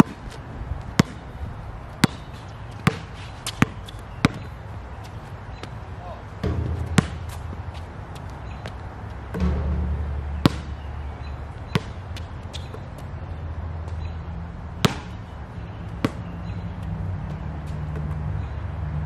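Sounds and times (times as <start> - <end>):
basketball bouncing on hard court: 0.9 - 1.2, 2.0 - 4.6, 6.4 - 12.8, 14.8 - 15.2.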